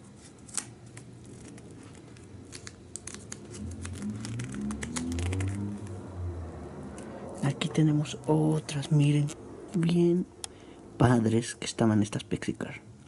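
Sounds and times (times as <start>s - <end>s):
plastic sheets crinkling: 0.0s - 5.8s
low rubbing rumble: 3.5s - 9.9s.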